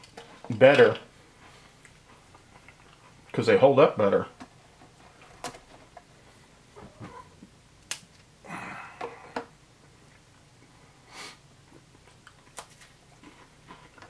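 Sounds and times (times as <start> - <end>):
crackers snapping and crunching: 7.8 - 8.3, 12.0 - 14.0.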